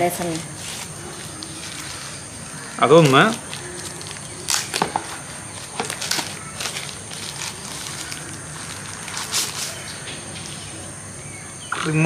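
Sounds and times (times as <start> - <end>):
packaging clicks and rustles: 2.8 - 10.0.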